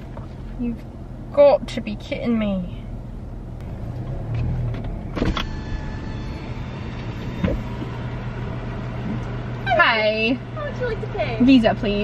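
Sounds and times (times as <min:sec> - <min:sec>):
car engine idling: 0:00.0 - 0:12.0
power window motor whine: 0:03.6 - 0:09.3.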